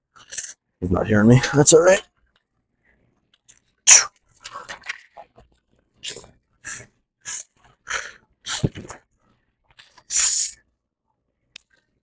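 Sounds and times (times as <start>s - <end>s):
person breathing forcefully: 6.6s - 8.8s.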